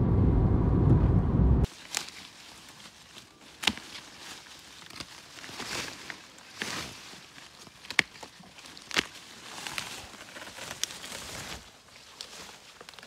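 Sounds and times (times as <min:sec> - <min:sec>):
car road and engine rumble: 0:00.0 - 0:01.7
rustling of canes and leaves: 0:01.6 - 0:13.0.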